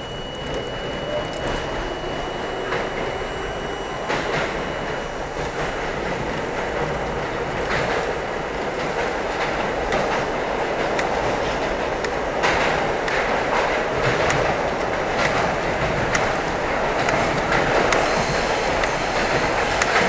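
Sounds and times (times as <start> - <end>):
steel wheels rumbling on rail: 0.0 - 20.0
wheels clicking over rail joints: 5.4 - 20.0.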